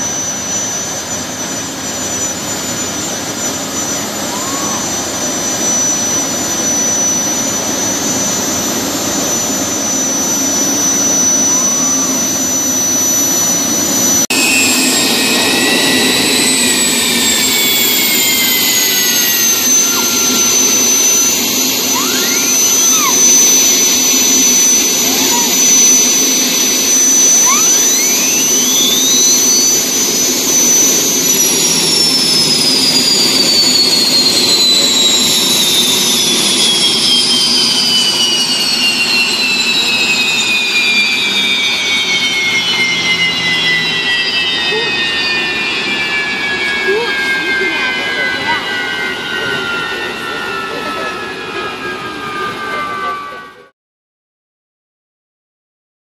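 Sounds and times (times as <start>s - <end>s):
boat engines rumbling: 0.0s - 14.2s
high-pitched engine whine: 0.0s - 53.7s.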